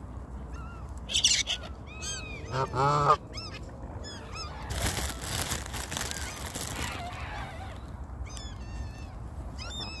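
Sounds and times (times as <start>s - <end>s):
geese calling: 1.1s - 3.2s.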